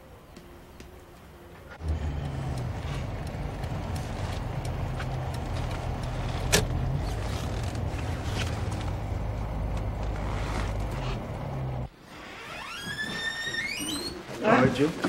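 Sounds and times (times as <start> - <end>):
car engine humming: 1.4 - 11.9.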